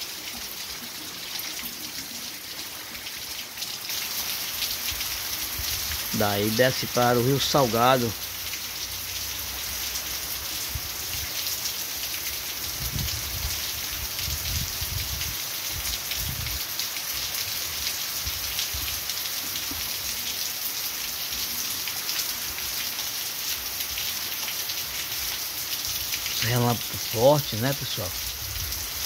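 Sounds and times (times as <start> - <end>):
heavy rain splashing: 0.0 - 29.0.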